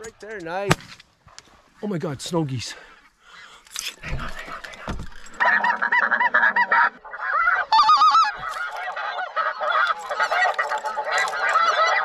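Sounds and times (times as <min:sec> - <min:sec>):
geese honking: 0:04.0 - 0:12.0.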